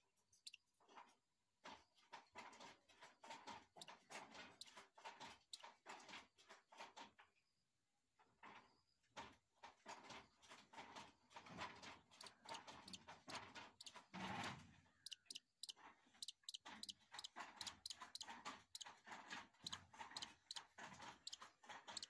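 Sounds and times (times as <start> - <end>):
beak clicking: 12.2 - 13.0, 15.1 - 15.4, 16.2 - 18.9, 21.3 - 22.0.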